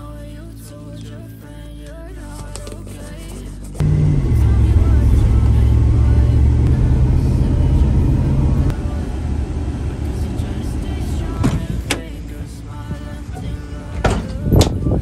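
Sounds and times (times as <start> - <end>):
car engine and tyres rumble: 3.7 - 15.0.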